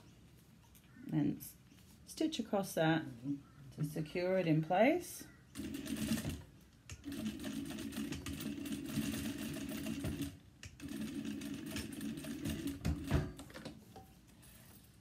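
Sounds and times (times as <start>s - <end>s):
sewing machine stitching: 5.6s - 13.4s.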